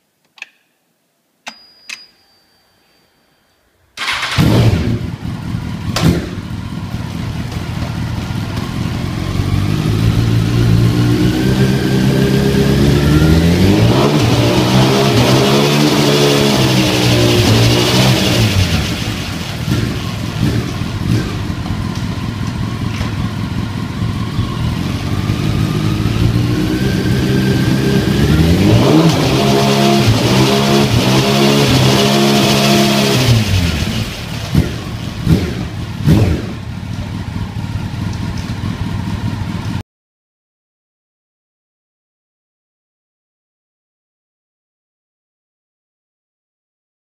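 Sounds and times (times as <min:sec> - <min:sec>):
engine blips: 0:04.0 - 0:39.8
motorcycle engine revving: 0:04.0 - 0:39.8.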